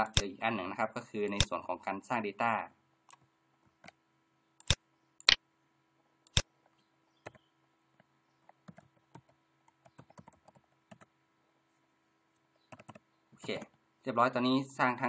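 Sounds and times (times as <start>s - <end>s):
mouse clicks: 0.0s - 0.3s, 1.3s - 1.5s, 4.6s - 5.4s.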